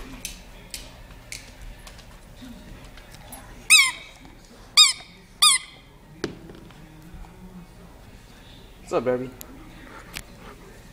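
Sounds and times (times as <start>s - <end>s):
dog claws clicking on floor: 0.2s - 3.5s
dog squealing: 3.7s - 4.1s.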